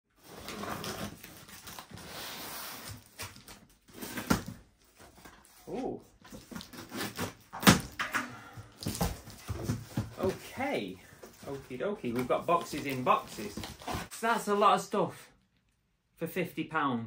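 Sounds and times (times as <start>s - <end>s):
cardboard rustling: 0.1s - 8.0s, 8.6s - 14.1s
packing tape peeling and tearing: 6.4s - 7.8s.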